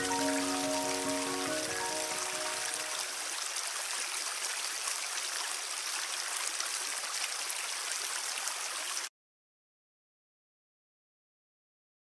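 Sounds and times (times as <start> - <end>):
river rushing over stones: 0.0 - 8.8.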